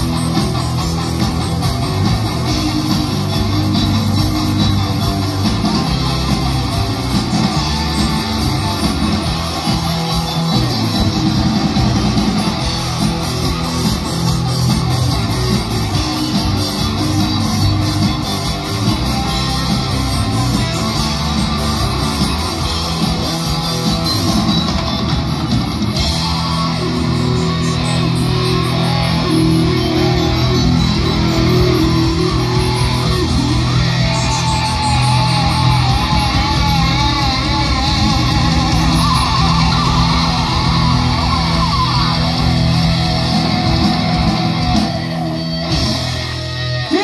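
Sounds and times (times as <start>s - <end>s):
rock music with guitar and bass: 0.0s - 47.0s.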